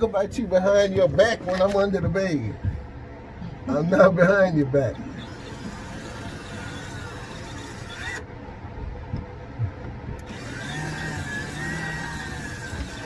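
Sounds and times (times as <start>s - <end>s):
cordless drill whining: 5.1s - 8.3s, 10.2s - 13.0s.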